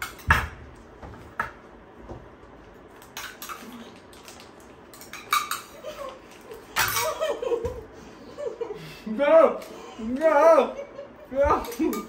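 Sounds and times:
spoons clinking against steel bowls: 4.9 - 5.9.

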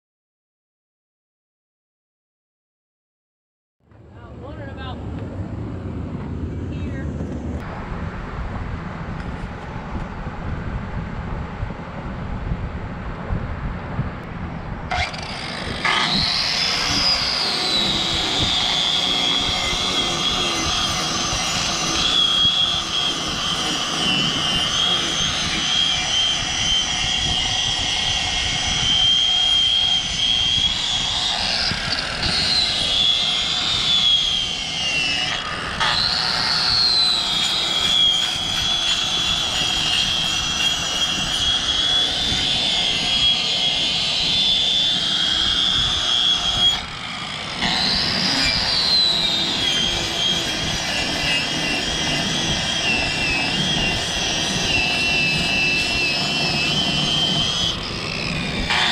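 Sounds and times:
angle grinder shaving rubber: 14.9 - 58.9.

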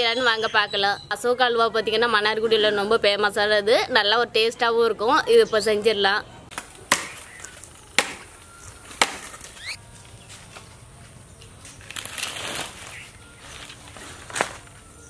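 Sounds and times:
blade chopping firewood: 6.5 - 9.6
dry twigs rustling and crackling: 6.5 - 15.0.

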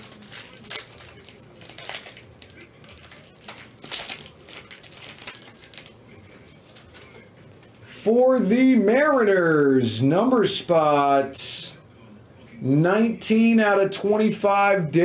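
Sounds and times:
plastic shrink wrap crinkling: 0.0 - 7.8.

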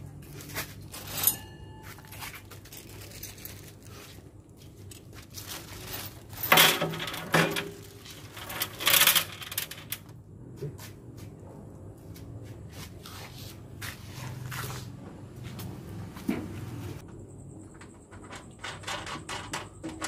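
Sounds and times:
bolts clinking on steel floor: 6.0 - 10.1.

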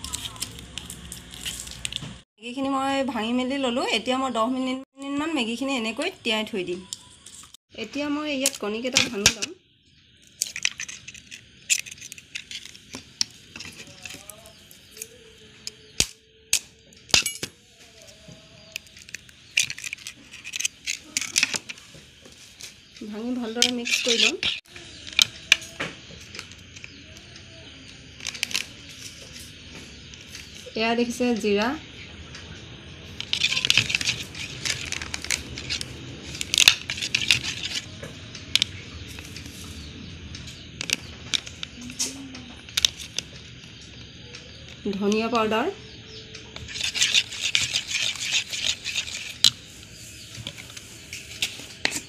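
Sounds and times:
eggshells cracking on plastic bowl: 10.3 - 15.0, 28.2 - 28.9, 33.2 - 37.9
spoon beating eggs in bowl: 23.4 - 25.4, 33.2 - 35.8, 46.6 - 49.7.

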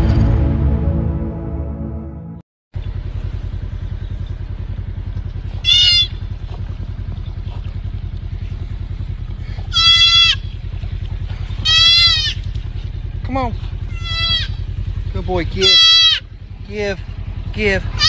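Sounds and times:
low pulsing rumble: 0.0 - 18.0
deer fawn bleating: 5.6 - 6.2, 9.7 - 10.6, 11.6 - 12.6, 13.9 - 14.7, 15.5 - 16.4.

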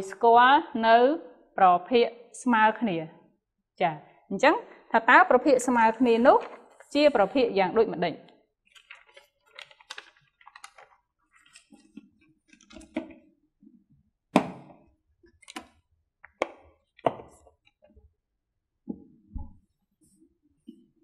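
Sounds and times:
paper rustling: 8.7 - 13.0.

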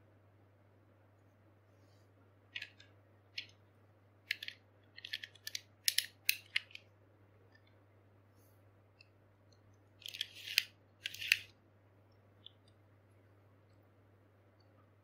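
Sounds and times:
sharp plastic clicks: 4.2 - 6.9.

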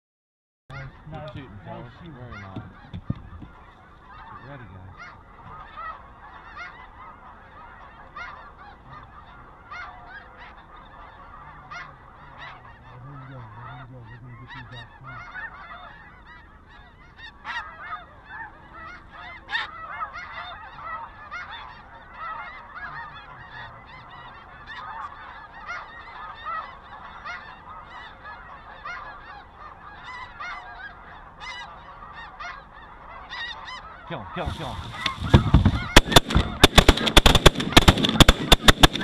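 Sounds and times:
snow geese yelping: 0.7 - 39.0
sharp clicks: 34.9 - 39.0.

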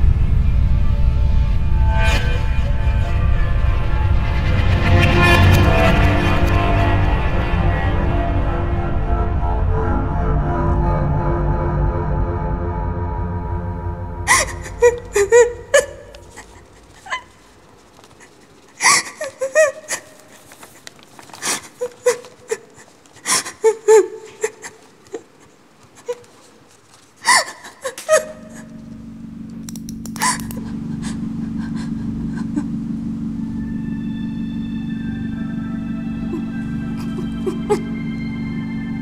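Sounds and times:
low steady hum: 0.0 - 39.0
woman sobbing: 14.3 - 28.9, 30.1 - 33.0, 36.0 - 38.0.

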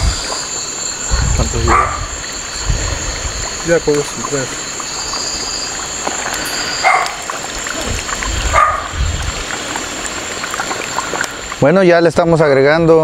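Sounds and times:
meat bubbling in hot fat: 0.0 - 12.4
dog barking: 1.6 - 2.1, 6.8 - 7.2, 8.5 - 9.0.

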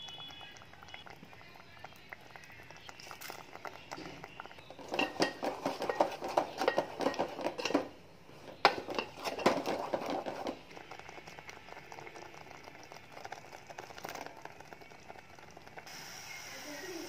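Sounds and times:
faint steady background noise: 0.0 - 17.0
spoon scraping metal pot: 4.0 - 10.7.

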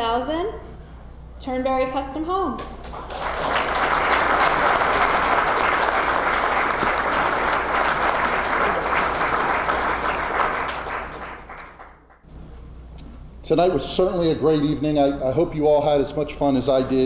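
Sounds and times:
audience applauding: 2.8 - 12.2.

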